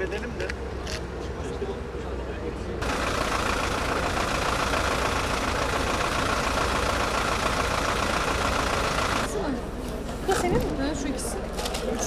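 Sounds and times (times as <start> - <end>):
bus engine idling: 2.8 - 12.0.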